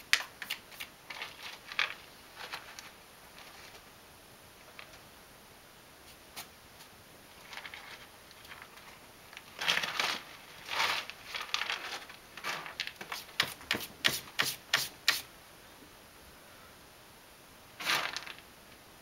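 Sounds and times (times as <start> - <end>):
cat scratching in litter: 9.6 - 15.2.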